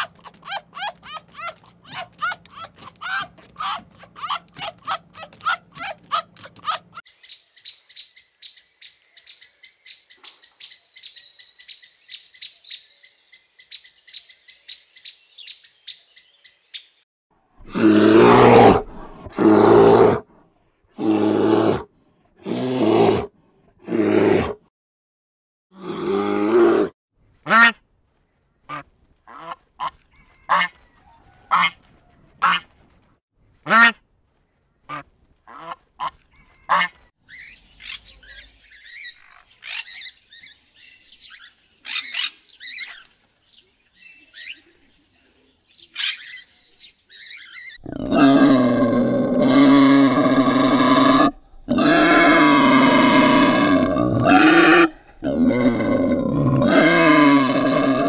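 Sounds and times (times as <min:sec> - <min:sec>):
budgerigars chirping: 0:07.1 - 0:16.9, 0:36.3 - 0:43.0.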